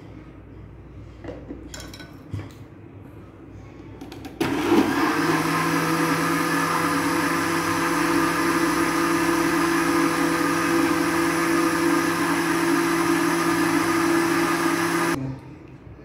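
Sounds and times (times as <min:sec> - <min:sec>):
blender motor running: 0:04.4 - 0:15.2.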